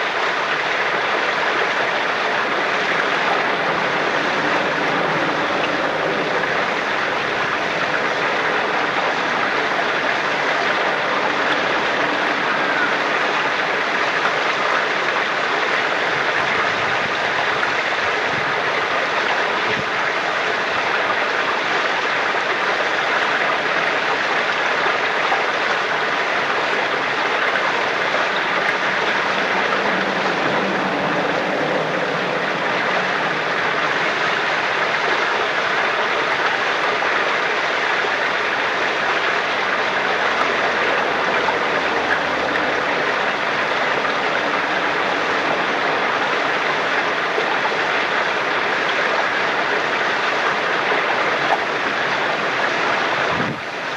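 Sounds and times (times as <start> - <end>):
spring water flowing: 0.0 - 53.9.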